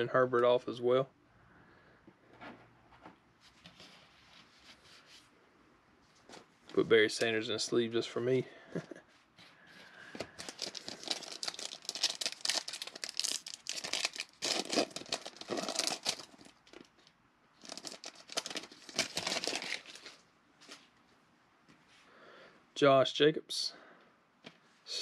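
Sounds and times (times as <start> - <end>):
foil card pack crinkling and tearing: 10.2 - 20.2.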